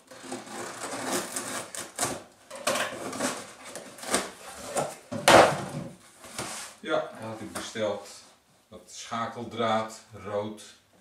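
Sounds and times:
cardboard flaps scraping: 0:00.1 - 0:02.2, 0:02.9 - 0:06.8
packing tape tearing: 0:00.1 - 0:05.0.

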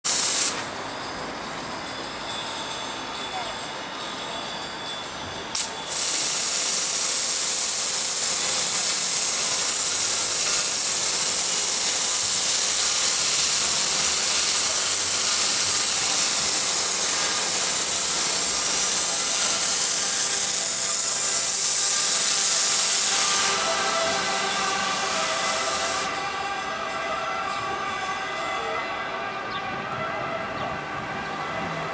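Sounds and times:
pressure washer spray hiss: 0:00.0 - 0:00.7, 0:05.6 - 0:26.2.

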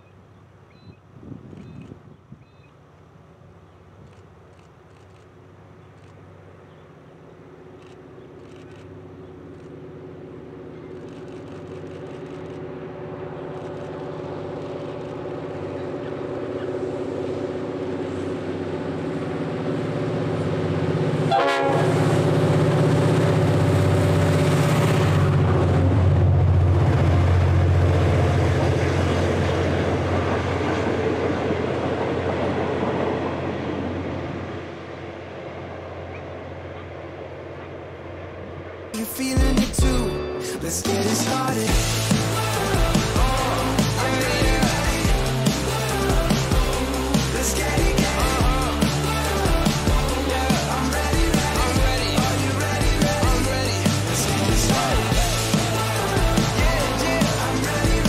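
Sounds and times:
diesel locomotive passing: 0:02.8 - 0:58.0
train wheels on rails: 0:04.0 - 0:39.9.

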